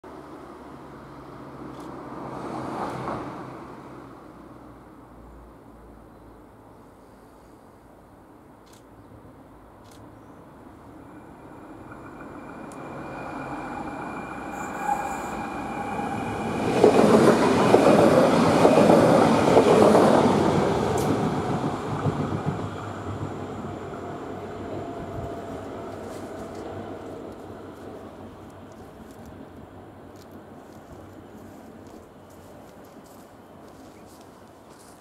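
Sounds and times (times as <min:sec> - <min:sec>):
passenger train rushing past: 0:00.2 - 0:04.5, 0:10.6 - 0:32.6.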